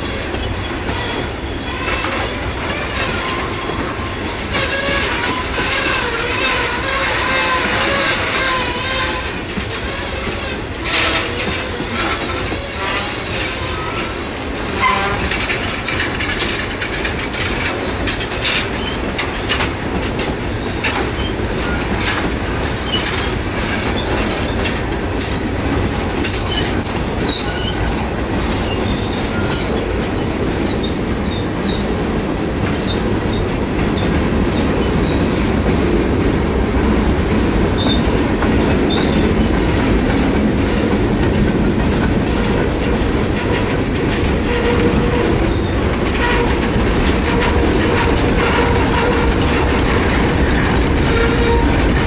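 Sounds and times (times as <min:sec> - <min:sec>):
freight train wheels rumbling: 0:00.0 - 0:52.0
wheels clacking over rail joints: 0:00.0 - 0:52.0.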